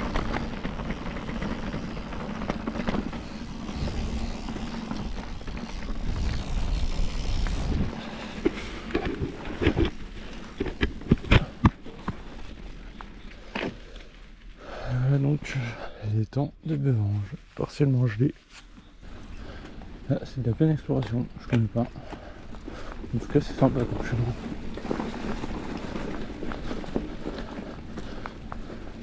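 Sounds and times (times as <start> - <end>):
bike knocking and rattling: 0.0 - 14.1, 18.7 - 29.0
bike tyres rumbling on gravel: 0.0 - 15.9, 16.7 - 29.0.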